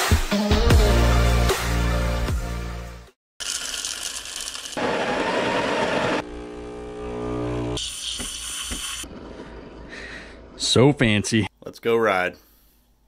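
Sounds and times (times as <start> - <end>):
espresso pump humming: 4.8 - 8.8.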